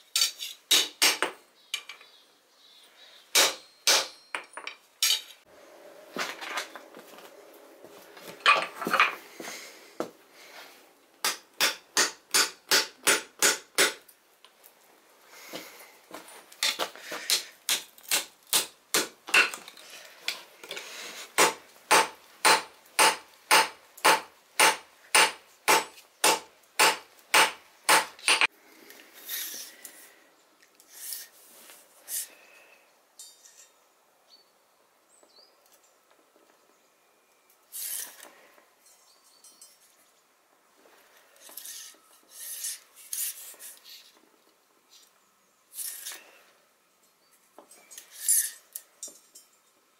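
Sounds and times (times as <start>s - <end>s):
hammer striking metal on anvil: 3.3s - 5.3s, 21.4s - 28.5s.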